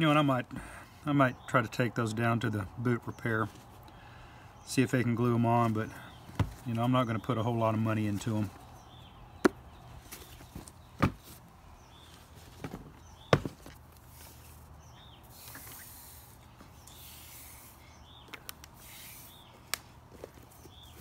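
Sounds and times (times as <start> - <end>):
boot knocking on plastic bench: 11.0 - 11.2.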